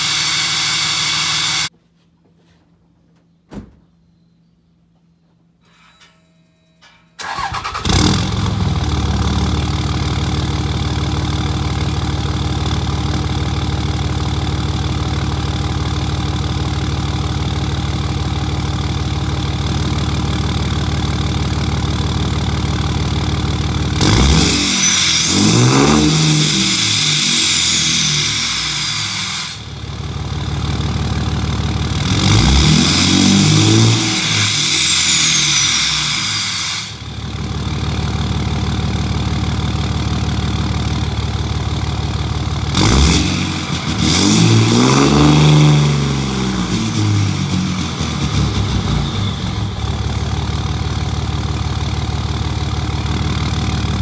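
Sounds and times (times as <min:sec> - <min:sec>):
turbo whistle: 0:00.0 - 0:01.7, 0:24.3 - 0:29.7
diesel engine revving: 0:07.3 - 0:17.5, 0:20.0 - 0:54.0
diesel engine idling: 0:07.3 - 0:24.2, 0:26.4 - 0:32.5, 0:37.0 - 0:43.6, 0:45.7 - 0:54.0.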